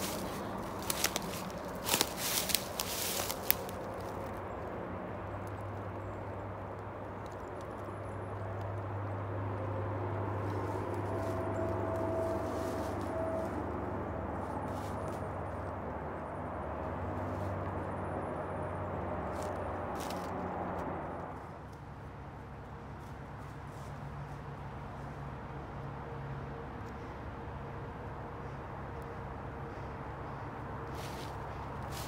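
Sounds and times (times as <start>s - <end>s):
dry leaves crunching: 0.0s - 4.4s, 10.3s - 13.7s, 14.4s - 15.7s, 19.2s - 20.4s, 30.9s - 32.0s
low engine drone: 0.0s - 32.0s.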